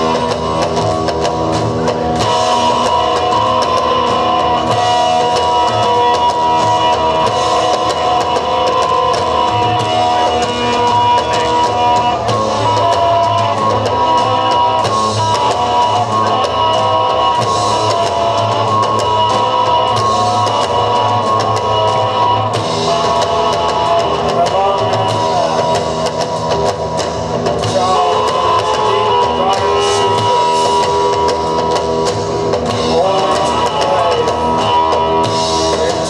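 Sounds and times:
live rock band playing: 0.0s - 36.0s.

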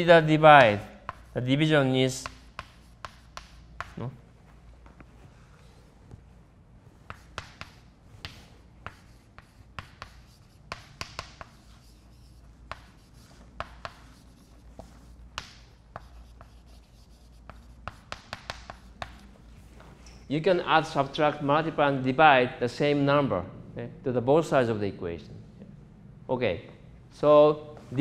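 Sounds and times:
faint room hum: 0.0s - 28.0s
chalk scratching: 0.3s - 5.9s, 6.9s - 19.9s
chalk tapping on chalkboard: 0.6s - 1.5s, 2.1s - 4.1s, 7.0s - 19.3s.

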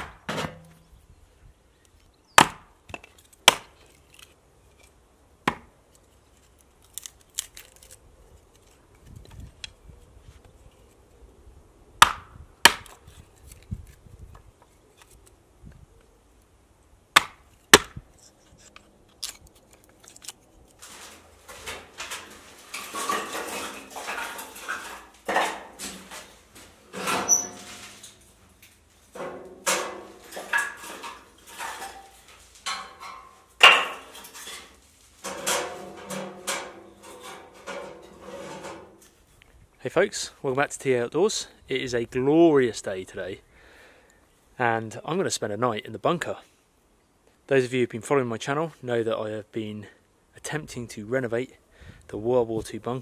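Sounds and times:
hatchet splitting wood: 2.4s - 3.8s, 5.4s - 5.7s, 12.0s - 13.0s, 17.2s - 18.0s, 33.6s - 34.2s
wooden sticks and metal clattering: 17.5s - 39.3s.

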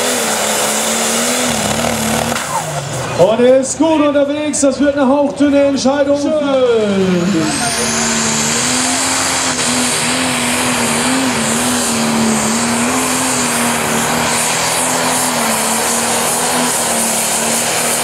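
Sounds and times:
tractor diesel engine at full load: 0.0s - 18.0s
hissing exhaust blast: 7.0s - 18.0s.

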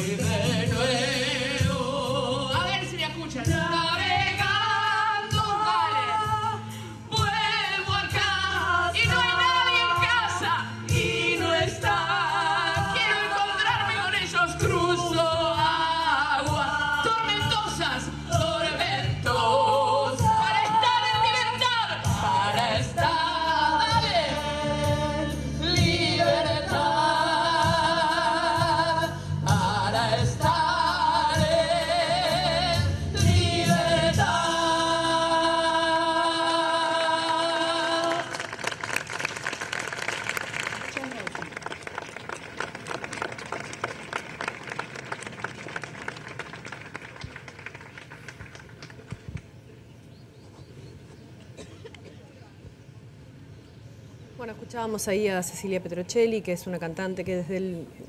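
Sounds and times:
group singing with woman leading: 0.0s - 2.7s, 3.4s - 38.3s
low musical accompaniment: 0.0s - 38.0s.

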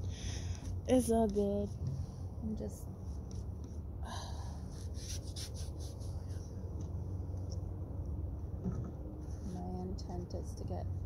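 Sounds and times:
steady low rumble: 0.0s - 11.0s
scratchy paint brush strokes: 4.7s - 7.6s.

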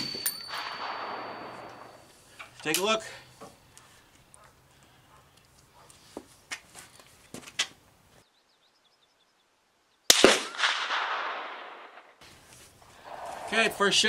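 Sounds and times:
rifle shot with echo: 0.0s - 2.1s, 10.1s - 12.2s.

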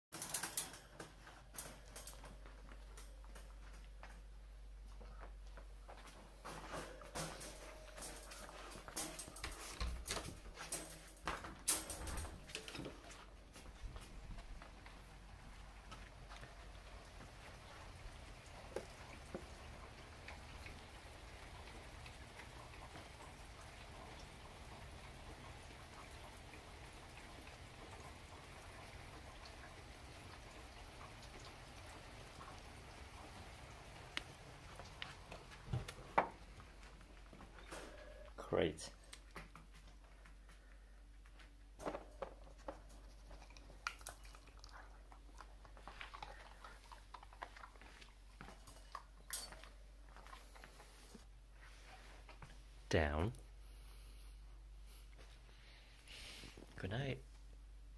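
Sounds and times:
puppy moving in wire crate: 0.2s - 3.6s, 6.4s - 14.2s
faint outdoor hiss: 0.2s - 57.9s.

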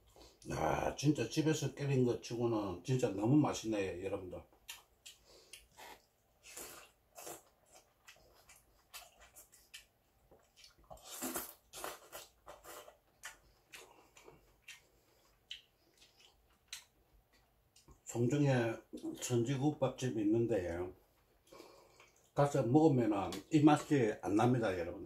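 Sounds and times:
man slurping and chewing soup: 4.7s - 18.0s.

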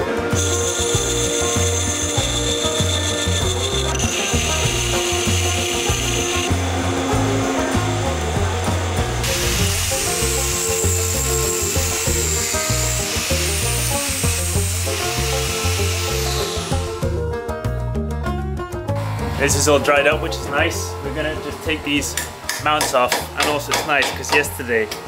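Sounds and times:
background music with bass line: 0.0s - 23.8s
angle grinder grinding metal: 0.2s - 17.1s.

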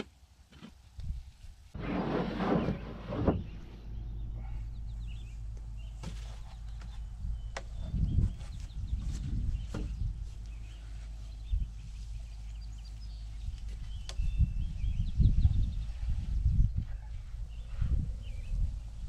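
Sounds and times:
dull thumps: 9.0s - 10.1s.

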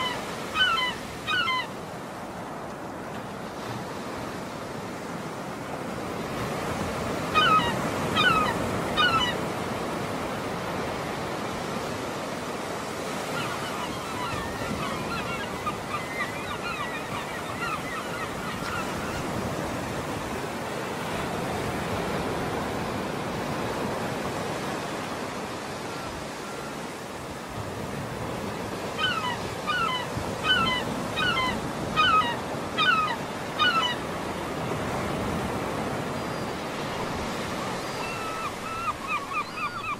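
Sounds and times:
bird calling: 0.0s - 1.7s, 7.3s - 9.5s, 13.2s - 19.6s, 28.8s - 34.2s, 36.1s - 39.9s
waves washing on shore: 0.0s - 39.9s.

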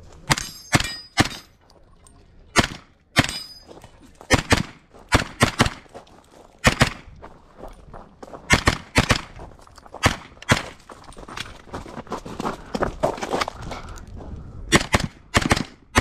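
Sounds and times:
pistol shots: 2.5s - 3.5s, 4.3s - 5.8s, 6.6s - 7.1s, 8.5s - 9.4s, 14.7s - 16.0s.

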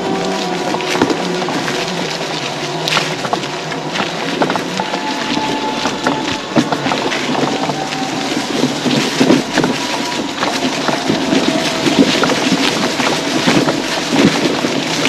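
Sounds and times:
faint steady whine: 0.0s - 15.0s
tyres crackling over forest trail: 0.0s - 15.0s.

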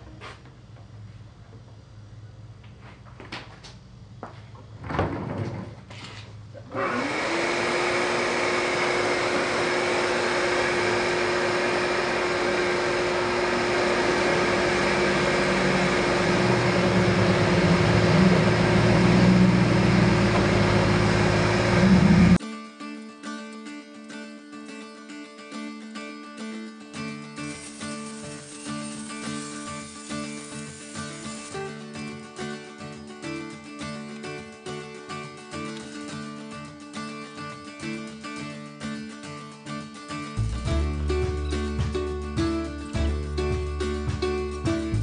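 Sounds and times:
vacuum cleaner motor whine: 5.9s - 22.4s, 27.4s - 32.0s.

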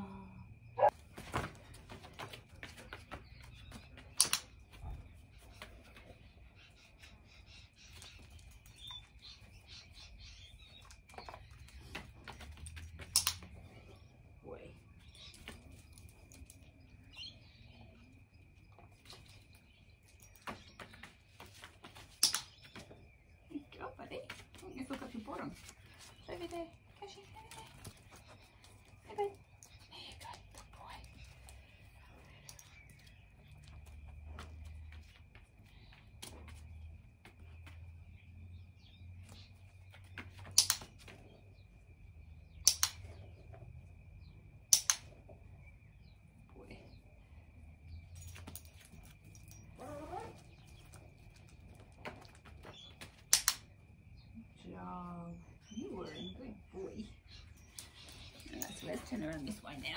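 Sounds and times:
birds chirping: 0.0s - 59.9s
dog claws on brick pavers: 0.9s - 6.3s, 7.8s - 13.7s, 18.8s - 23.1s, 39.1s - 41.5s, 48.2s - 53.8s
dog-training clicker clicking: 4.2s - 4.4s, 13.1s - 13.4s, 42.6s - 43.0s, 44.7s - 45.0s, 53.3s - 53.6s.

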